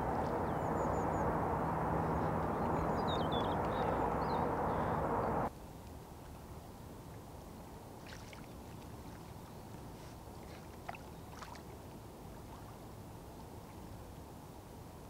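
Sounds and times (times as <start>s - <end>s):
distant road traffic hum: 0.0s - 5.5s
faint water splashes: 0.0s - 15.0s.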